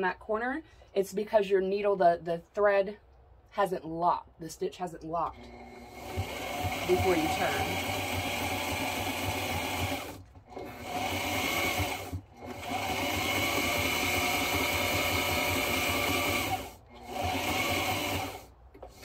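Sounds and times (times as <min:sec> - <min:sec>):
electric sewing machine stitching: 0:05.3 - 0:19.0.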